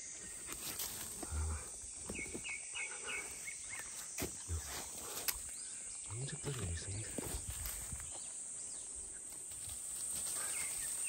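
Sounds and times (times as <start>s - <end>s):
insects droning: 0.0s - 11.0s
footsteps in dry leaves: 7.1s - 8.2s.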